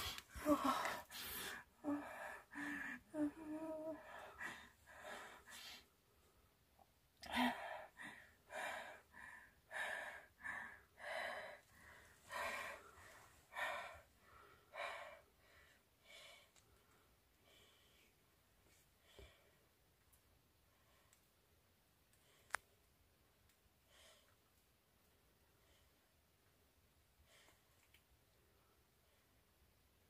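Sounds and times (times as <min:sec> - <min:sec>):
woman gasping: 0:00.0 - 0:05.8
woman breathing hard: 0:00.0 - 0:05.9, 0:07.2 - 0:16.6.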